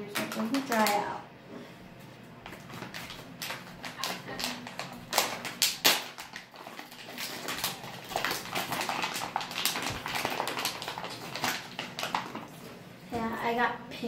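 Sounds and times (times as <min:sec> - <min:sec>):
plastic bag crinkling: 0:02.5 - 0:12.8.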